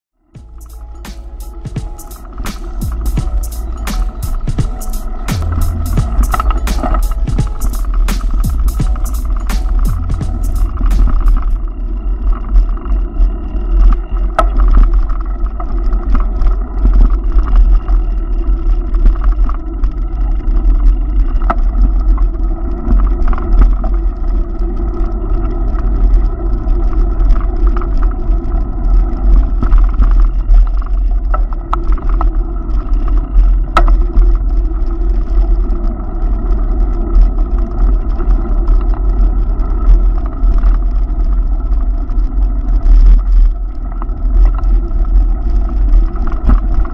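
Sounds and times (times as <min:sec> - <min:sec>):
heavy low rumble: 0:00.3 - 0:46.9
road traffic: 0:00.4 - 0:11.6.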